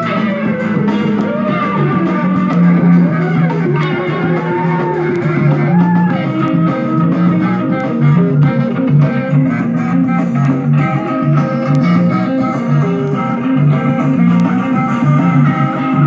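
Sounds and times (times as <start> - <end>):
electric guitar: 0.0 - 16.0
repeating bass line: 0.0 - 16.0.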